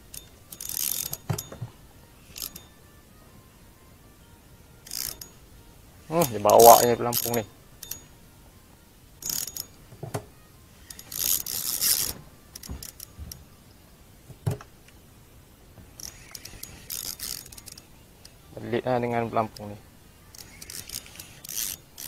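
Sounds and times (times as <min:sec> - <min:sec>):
fishing reel clicks and clinks: 0:00.0 - 0:01.6, 0:02.2 - 0:02.8, 0:04.8 - 0:05.5, 0:06.1 - 0:08.2, 0:09.2 - 0:09.8, 0:10.8 - 0:13.4, 0:16.0 - 0:22.0.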